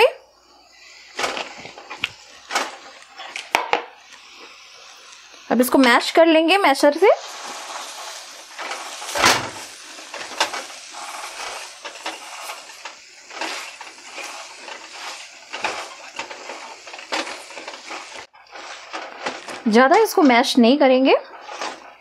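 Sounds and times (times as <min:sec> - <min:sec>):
sizzle: 0:00.0 - 0:22.0
masher knocking and scraping pan: 0:07.3 - 0:20.4, 0:21.3 - 0:22.0.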